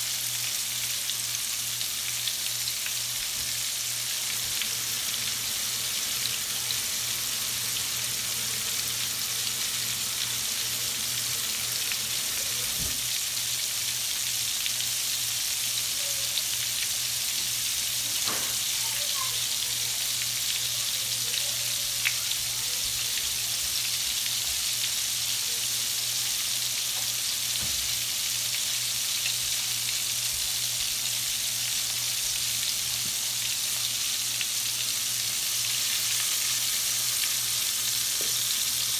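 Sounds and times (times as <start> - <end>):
shrimp frying in hot oil: 0.0 - 38.9.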